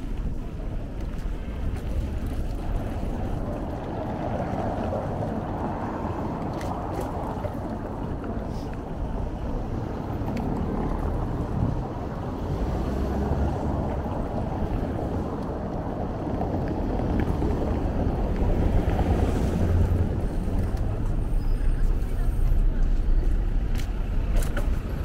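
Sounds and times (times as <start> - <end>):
bicycle rolling over cobbles: 0.0 - 8.4
bus passing: 0.0 - 25.0
city street traffic: 0.0 - 25.0
wind on microphone: 0.0 - 25.0.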